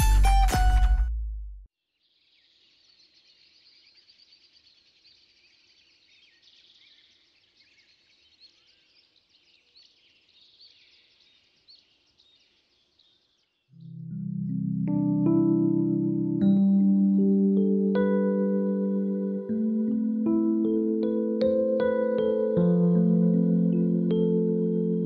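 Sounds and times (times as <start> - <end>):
small birds chirping: 1.9 - 14.2.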